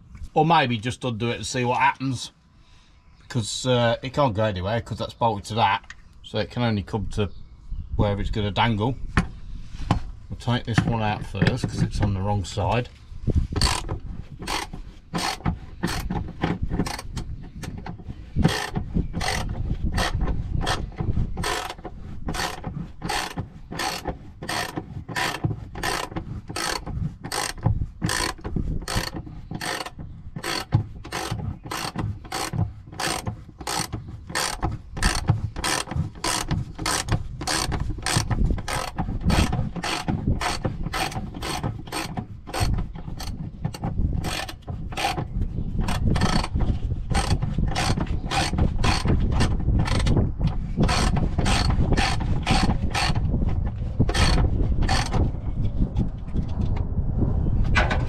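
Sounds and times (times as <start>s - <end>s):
socket ratchet clicking: 18.4s - 20.8s, 21.4s - 21.8s, 22.4s - 43.4s.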